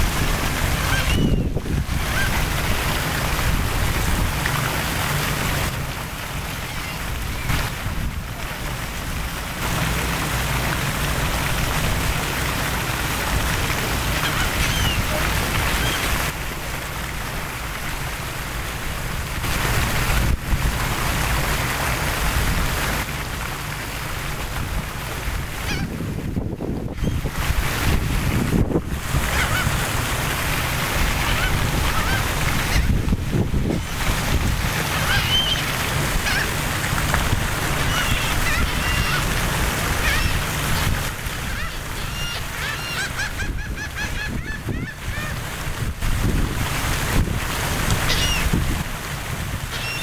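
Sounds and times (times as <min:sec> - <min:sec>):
wind buffeting microphone: 0:00.0 - 0:04.5, 0:24.6 - 0:30.1, 0:30.9 - 0:42.0, 0:43.3 - 0:49.8
fountain jets splashing: 0:00.0 - 0:50.0.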